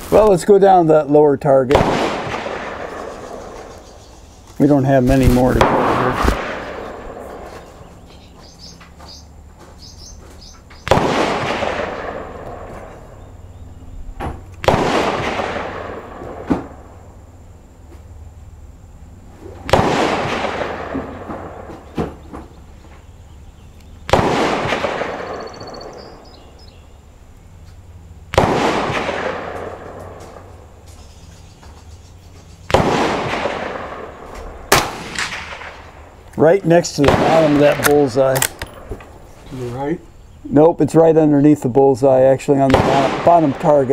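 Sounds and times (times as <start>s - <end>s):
rifle shots with echo: 1.7s - 3.6s, 4.7s - 7.5s, 10.8s - 12.9s, 14.6s - 16.9s, 19.7s - 21.7s, 24.1s - 26.3s, 28.3s - 30.6s, 32.7s - 36.1s, 36.8s - 38.9s, 42.6s - 43.9s.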